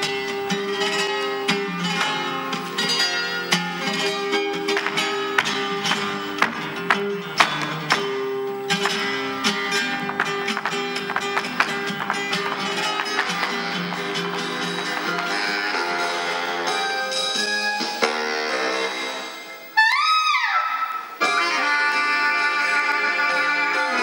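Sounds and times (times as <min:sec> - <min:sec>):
acoustic guitars playing: 0:00.0 - 0:19.7
dancer's footwork taps on stage: 0:04.7 - 0:08.2, 0:10.0 - 0:15.8.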